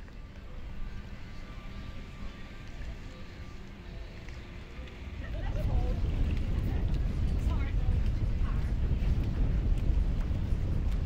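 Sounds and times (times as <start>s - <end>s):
wind buffeting microphone: 4.9s - 11.0s.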